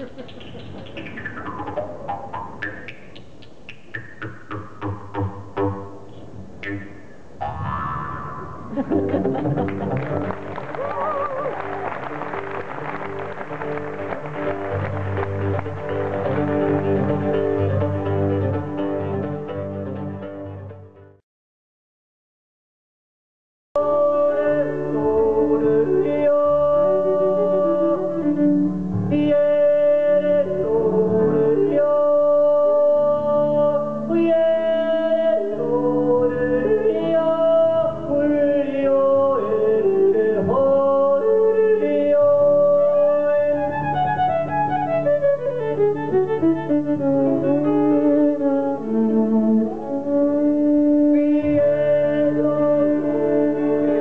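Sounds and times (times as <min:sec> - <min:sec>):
folk band playing: 0:11.4 - 0:21.0, 0:42.4 - 0:54.0.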